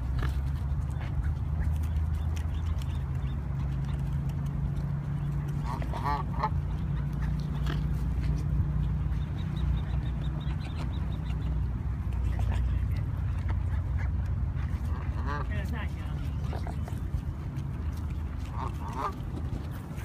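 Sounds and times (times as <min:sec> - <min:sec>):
steady low rumble: 0:00.0 - 0:20.0
waterfowl quacking: 0:05.6 - 0:08.0, 0:14.8 - 0:15.6, 0:18.4 - 0:19.4.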